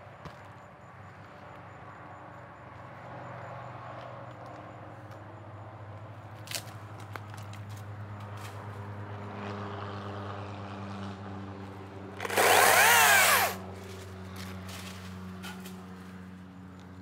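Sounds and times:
chainsaw motor whine: 0:12.1 - 0:15.0.

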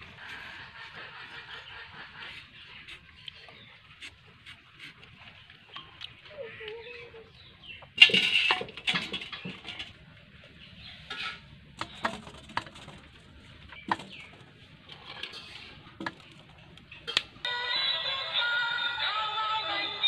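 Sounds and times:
music with singing: 0:17.4 - 0:20.0.

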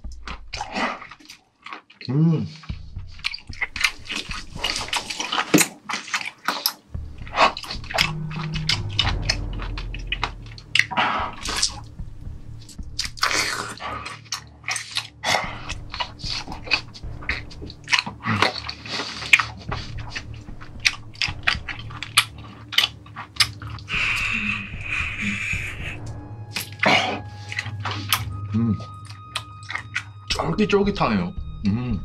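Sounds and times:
chewing and biting: 0:00.0 - 0:07.8, 0:13.0 - 0:24.6, 0:26.5 - 0:30.4
wet mouth clicks and smacks: 0:00.2 - 0:06.8, 0:13.2 - 0:24.2, 0:28.9 - 0:30.4.

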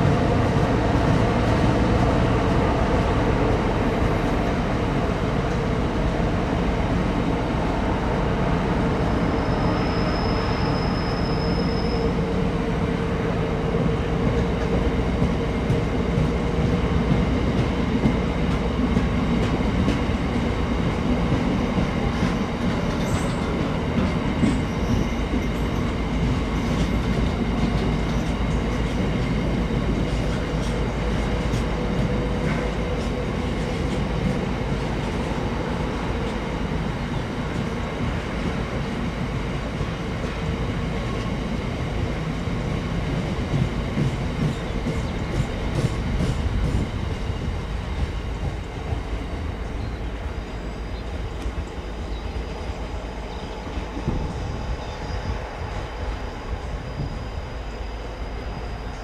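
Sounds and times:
freight train rumbling past: 0:00.0 - 0:59.0
faint high squeal: 0:08.9 - 0:12.5, 0:24.5 - 0:25.8, 0:52.0 - 0:59.0.

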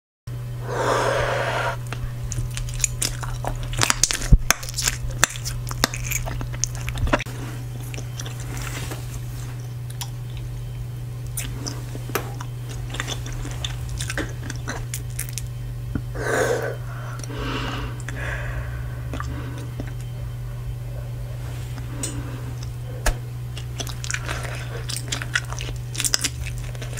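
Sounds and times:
steady low hum: 0:00.3 - 0:26.9
breathy blowing of bubbles: 0:00.6 - 0:01.8, 0:16.1 - 0:19.9
bubble gum chewing: 0:02.2 - 0:10.5, 0:11.2 - 0:26.9
gum popping: 0:02.3 - 0:07.3, 0:12.4 - 0:16.1, 0:19.0 - 0:20.2, 0:21.7 - 0:26.9.

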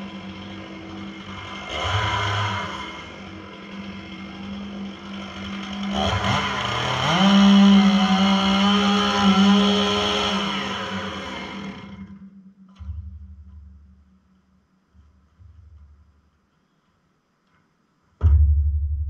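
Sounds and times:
chainsaw idling and revving: 0:00.0 - 0:12.2
chainsaw cutting timber: 0:00.0 - 0:12.3.

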